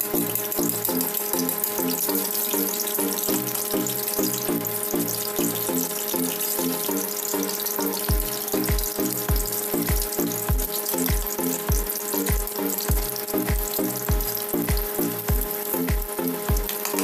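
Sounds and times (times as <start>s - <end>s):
egg sizzling in hot oil: 0.0s - 17.0s
music with thumping beat: 8.1s - 17.0s.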